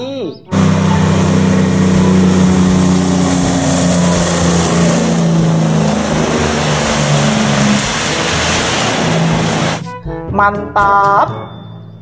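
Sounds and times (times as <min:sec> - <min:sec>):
vehicle engine revving: 0:00.5 - 0:09.8.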